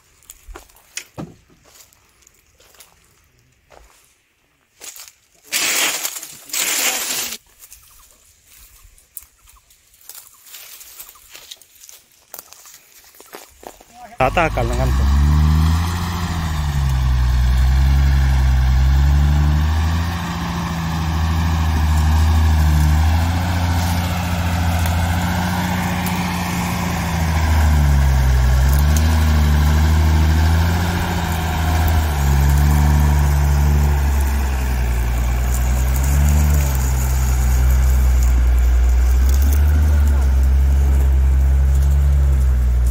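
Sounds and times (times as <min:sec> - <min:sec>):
diesel truck engine under load: 0:14.2 - 0:42.9.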